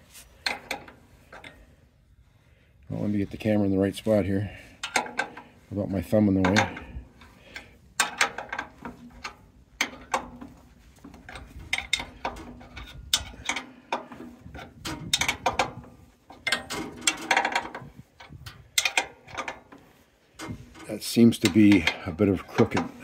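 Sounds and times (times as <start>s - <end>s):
wrench clinking against bolts: 6.3s - 19.7s, 20.4s - 23.0s.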